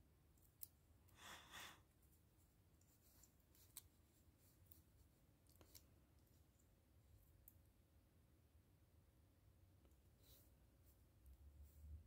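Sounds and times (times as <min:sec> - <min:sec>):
soft paper rustle: 0:01.2 - 0:06.7.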